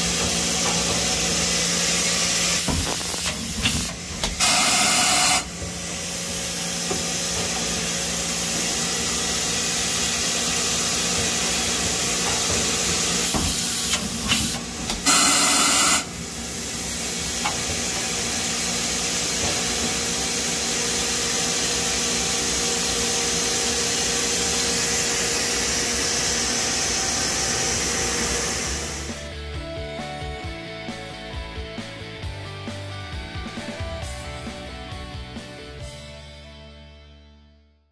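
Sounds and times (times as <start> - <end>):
lathe machine hiss and hum: 0.0 - 29.3.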